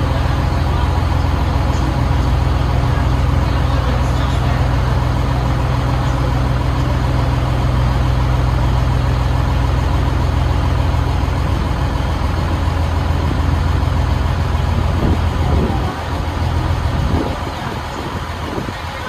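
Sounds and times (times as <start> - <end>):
boat engine droning: 0.0 - 19.0
steady rushing noise: 11.2 - 19.0.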